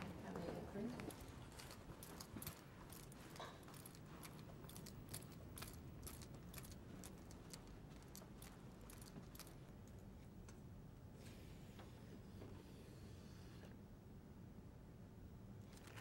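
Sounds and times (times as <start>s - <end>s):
footsteps on tiled floor: 0.0s - 9.7s.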